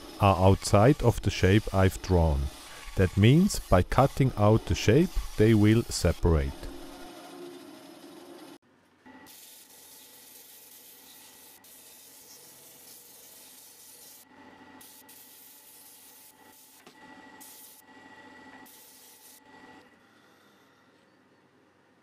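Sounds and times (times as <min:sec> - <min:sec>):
wood rasping on sanding disc: 0:00.0 - 0:07.0.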